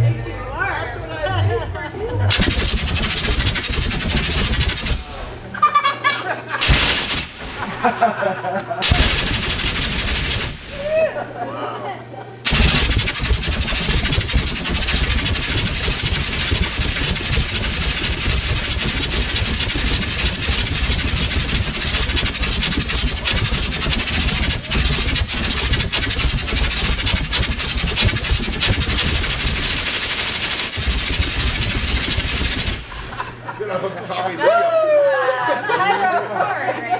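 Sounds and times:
gas flame jets roaring: 1.5s - 5.5s, 6.6s - 8.2s, 8.8s - 11.4s, 12.4s - 33.6s.

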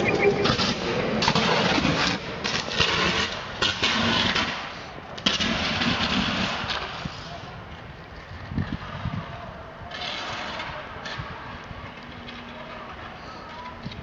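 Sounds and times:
electrical arcing crackling and buzzing: 0.0s - 4.5s.

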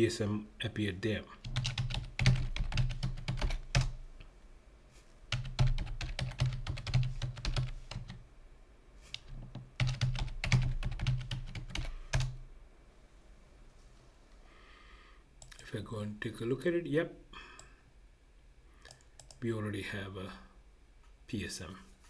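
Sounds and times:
computer keyboard typing: 1.4s - 4.0s, 5.3s - 8.2s, 9.1s - 12.4s, 18.9s - 19.4s.

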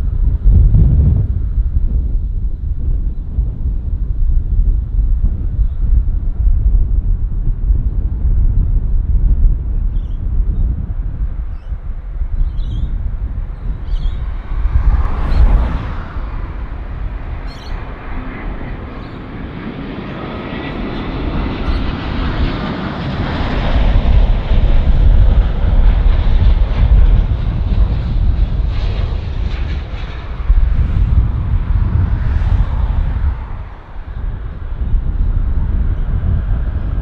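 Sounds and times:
jet engines roaring: 10.4s - 37.0s.

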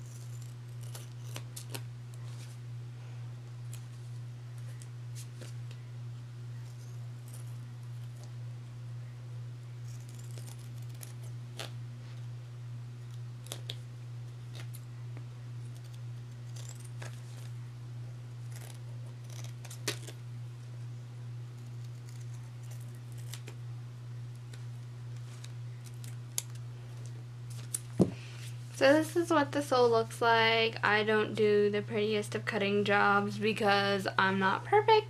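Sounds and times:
scissors snipping tape: 0.0s - 1.8s, 9.9s - 11.8s, 18.4s - 20.2s, 24.4s - 26.6s
steady low hum: 0.0s - 35.0s.

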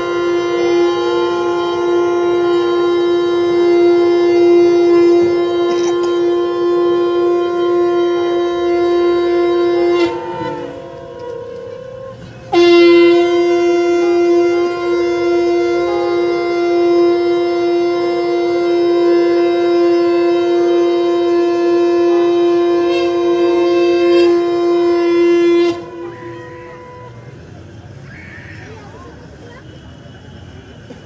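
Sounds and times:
conch shell blast: 0.0s - 27.5s.

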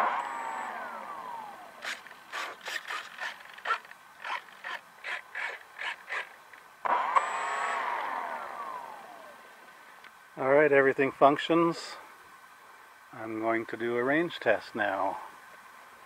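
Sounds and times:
servo buzzes: 0.0s - 9.3s
electric motor whine: 0.0s - 9.7s.

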